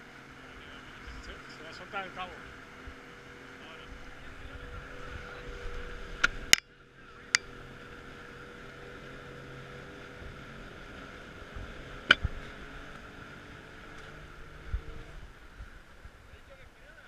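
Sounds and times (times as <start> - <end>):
boat engine and wake rushing: 0.0 - 16.8.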